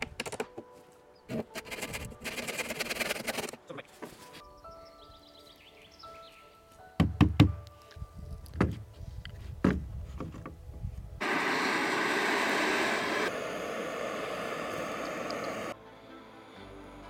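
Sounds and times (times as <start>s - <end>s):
blowtorch hissing: 11.2s - 17.0s.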